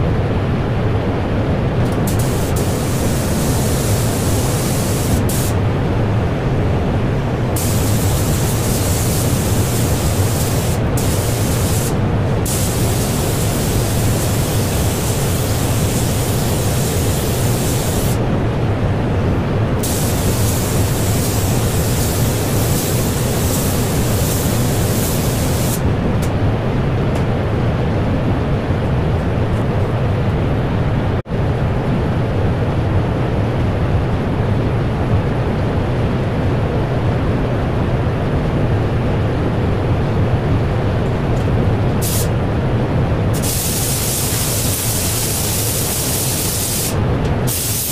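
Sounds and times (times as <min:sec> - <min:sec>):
ventilation fans rushing: 0:00.0 - 0:47.9
spray gun hissing: 0:01.9 - 0:05.6, 0:07.5 - 0:18.2, 0:19.8 - 0:25.8, 0:42.0 - 0:42.3, 0:43.4 - 0:47.9.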